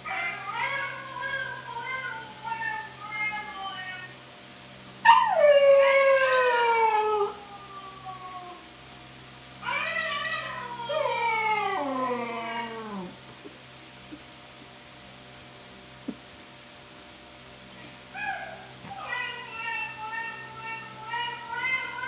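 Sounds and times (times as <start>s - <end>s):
puppy howling: 0.0s - 4.1s, 5.0s - 8.7s, 9.3s - 13.2s, 17.7s - 22.0s.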